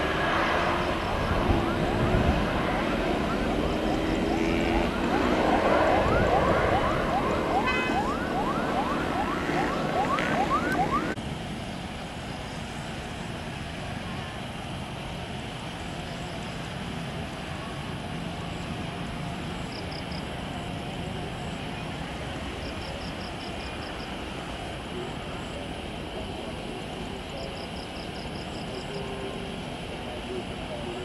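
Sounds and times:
distant jet noise: 0:00.0 - 0:31.0
wailing siren yelp: 0:00.9 - 0:11.2.

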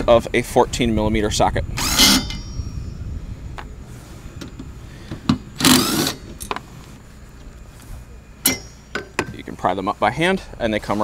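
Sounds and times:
cordless drill whirring: 0:01.8 - 0:02.6, 0:05.6 - 0:06.3.

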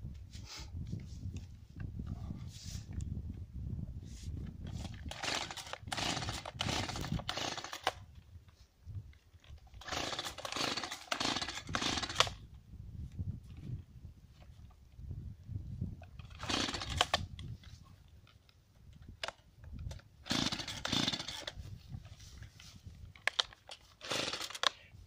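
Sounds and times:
chainsaw sputtering: 0:05.0 - 0:08.0, 0:09.7 - 0:12.4, 0:16.2 - 0:17.3, 0:20.2 - 0:21.6, 0:24.0 - 0:24.8.

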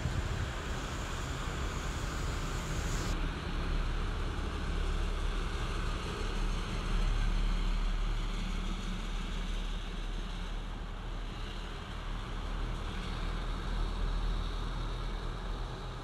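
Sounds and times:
strong wind buffeting microphone: 0:00.0 - 0:03.2.

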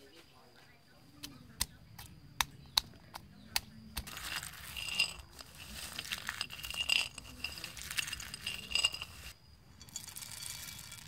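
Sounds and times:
peanuts scraping on a ceramic plate: 0:04.0 - 0:11.0
plate clinking: 0:04.1 - 0:11.0.

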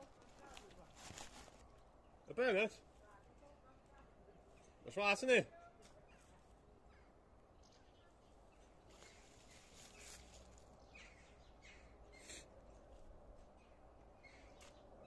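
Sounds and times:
hedge foliage rustling: 0:00.0 - 0:04.8, 0:08.5 - 0:11.4.

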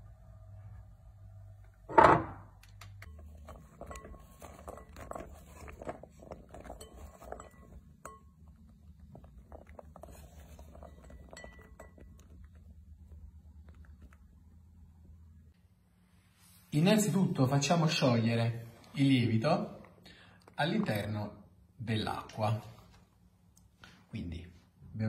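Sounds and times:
food clinking in glass bowl: 0:03.1 - 0:12.6.

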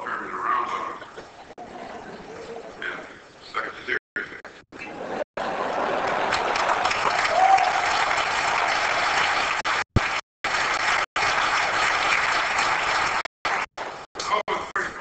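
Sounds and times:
audience applauding: 0:05.4 - 0:14.5.

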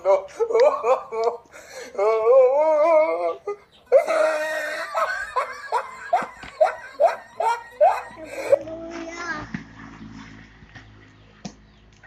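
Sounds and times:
child laughing: 0:00.0 - 0:09.2.

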